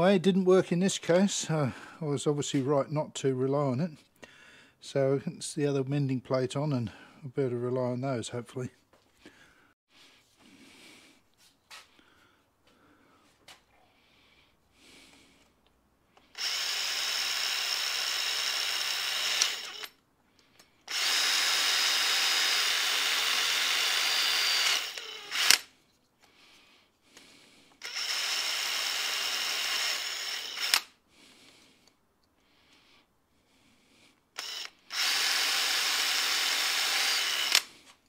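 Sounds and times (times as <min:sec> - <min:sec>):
cordless drill whining: 0:16.2 - 0:20.0, 0:20.6 - 0:25.7, 0:27.2 - 0:31.0, 0:34.3 - 0:38.0.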